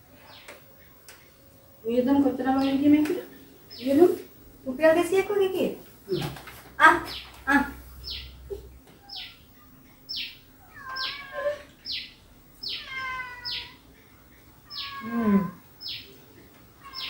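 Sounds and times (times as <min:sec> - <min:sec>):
small animal high cries: 0:10.6 - 0:11.7, 0:12.6 - 0:13.8, 0:14.7 - 0:15.6.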